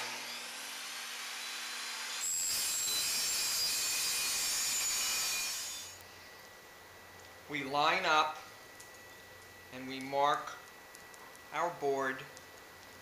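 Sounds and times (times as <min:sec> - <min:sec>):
saw blade cutting hiss: 0:00.0 - 0:06.0
table saw motor hum: 0:00.0 - 0:06.0.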